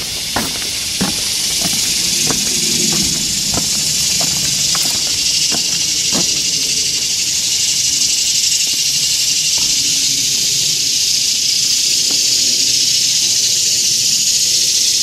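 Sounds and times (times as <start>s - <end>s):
soft knocks: 0.0s - 6.6s
insect chorus buzzing: 0.0s - 15.0s.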